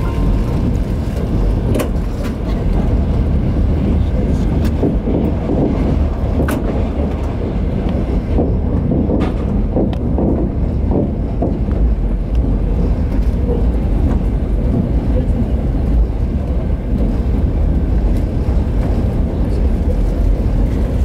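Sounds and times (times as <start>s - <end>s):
train rumble inside carriage: 0.0s - 21.0s
sharp track clicks: 4.5s - 15.1s.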